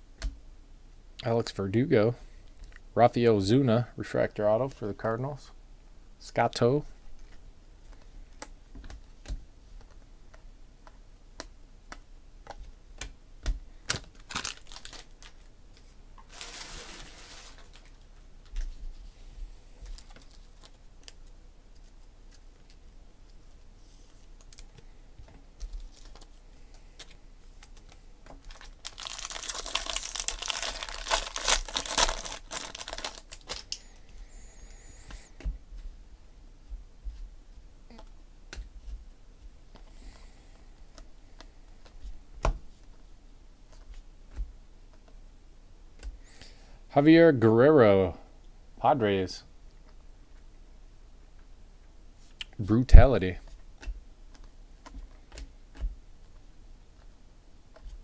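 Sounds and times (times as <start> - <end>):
foil wrapper tearing and crinkling: 13.9 - 15.5, 28.4 - 33.8.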